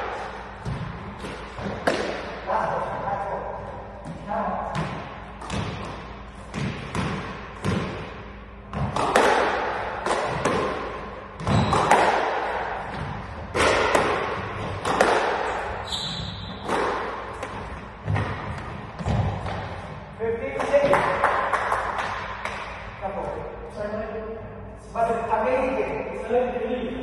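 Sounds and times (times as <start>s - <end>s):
squash ball hitting rackets and walls: 0.0s - 22.9s
short high squeak: 15.8s - 16.5s.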